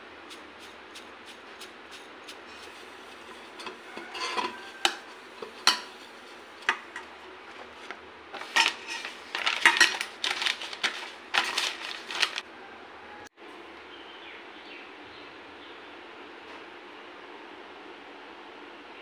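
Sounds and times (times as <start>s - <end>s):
cloth wiping metal bowl: 0.0s - 12.3s
paper rustling and crinkling: 2.5s - 12.4s
clinks against metal bowl: 3.2s - 7.1s.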